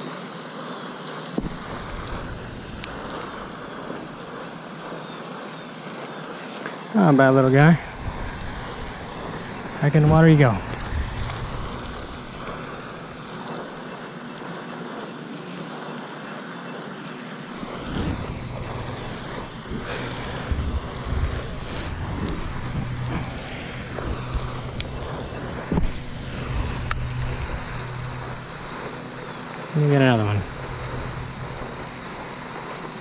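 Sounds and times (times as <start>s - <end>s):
outdoor hiss: 0.0s - 33.0s
wind buffeting microphone: 1.4s - 4.5s, 7.2s - 13.9s, 17.6s - 33.0s.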